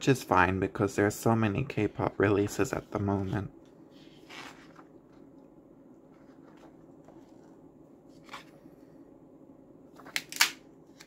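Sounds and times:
faint heat pump hum: 0.0s - 11.0s
paper pages turning: 2.7s - 5.2s, 6.1s - 8.6s, 9.9s - 11.0s.

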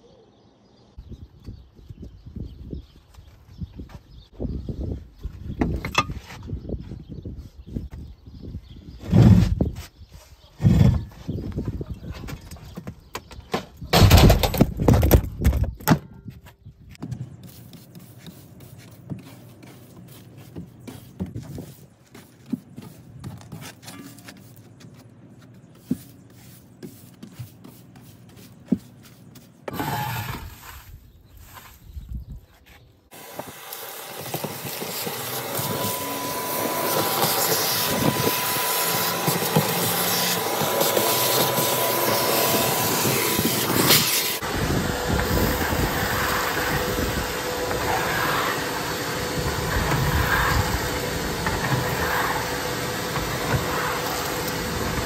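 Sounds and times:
brush sweeping debris: 17.3s - 31.8s
shop vacuum running: 29.7s - 30.6s, 33.1s - 55.0s.

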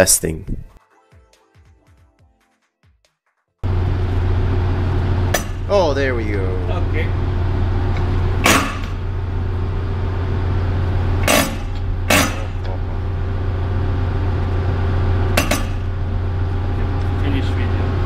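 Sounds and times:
machinery drone: 3.6s - 18.0s.

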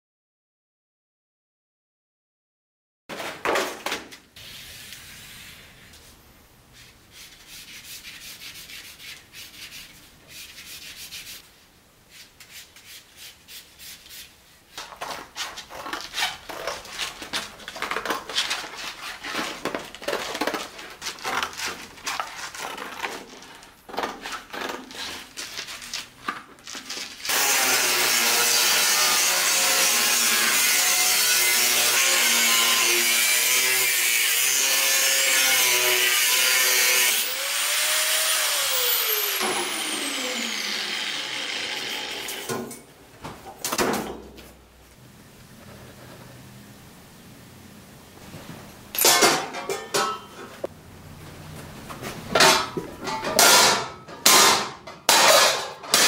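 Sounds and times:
knife cutting cardboard: 12.1s - 26.1s
angle grinder cutting steel: 27.3s - 42.6s.

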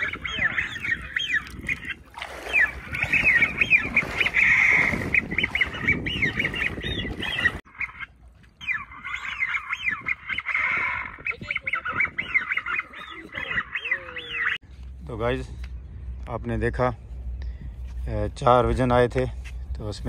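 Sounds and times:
duck whistles and calls: 0.0s - 14.6s.

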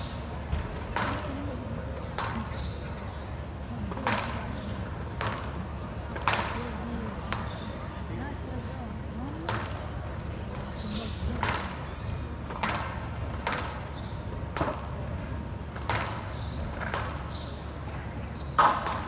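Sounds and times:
ball hitting court walls: 0.5s - 2.8s, 3.9s - 7.6s, 11.3s - 15.0s, 15.7s - 19.0s
squash ball struck by rackets: 0.6s - 1.4s, 3.9s - 6.7s, 11.4s - 11.8s, 12.5s - 13.8s, 14.5s - 15.0s, 15.7s - 17.2s, 18.5s - 19.0s.

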